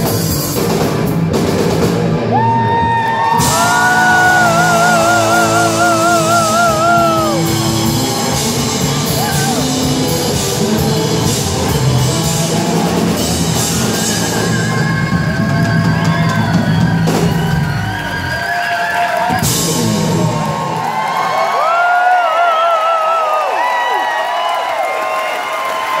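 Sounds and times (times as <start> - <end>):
live rock band playing: 0.0 - 18.3, 19.2 - 20.8.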